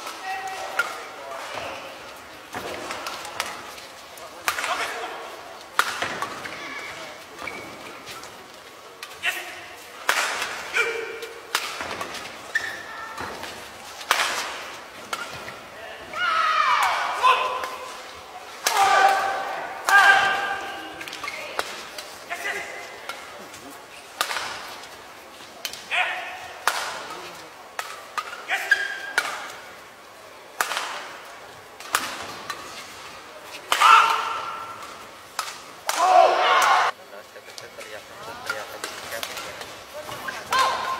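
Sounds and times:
rackets hitting shuttlecock: 5.7 - 6.7, 10.0 - 15.6, 26.6 - 27.2
shoes squeaking on court: 6.3 - 8.6, 11.9 - 14.0
shoes squealing on court: 12.4 - 12.9.

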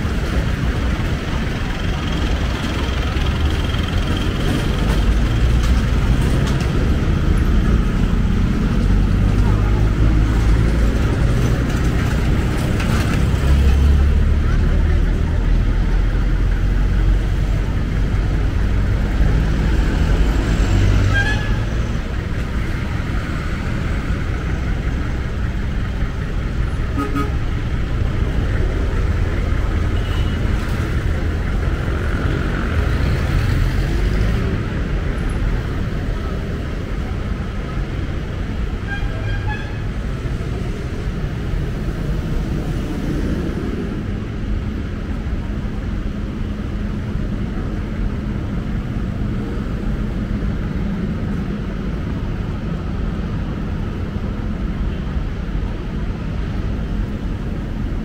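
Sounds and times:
vehicle engines rumbling: 0.0 - 58.0
short car horns: 26.9 - 27.4.

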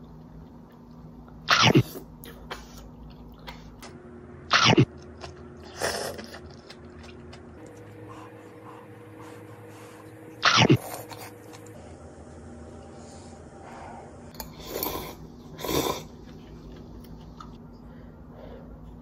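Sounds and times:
person slurping noodles: 14.4 - 16.2.

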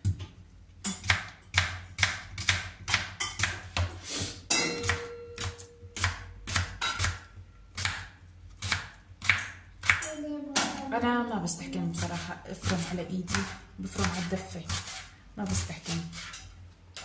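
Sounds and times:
knife chopping on cutting board: 1.0 - 4.0, 4.8 - 10.0, 12.0 - 16.4.

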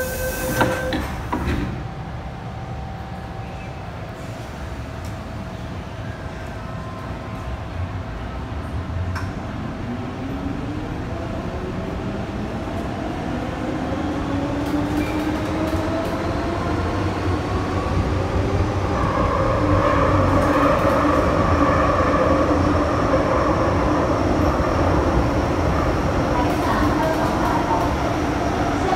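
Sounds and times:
train wheels rumbling: 8.6 - 28.9.

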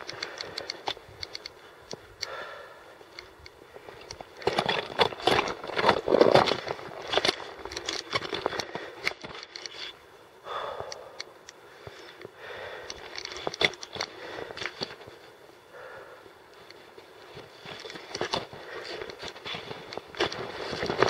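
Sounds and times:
person breathing heavily: 0.0 - 4.1, 8.4 - 9.2, 10.4 - 16.5, 18.5 - 19.8
crunching footsteps: 3.8 - 9.9.

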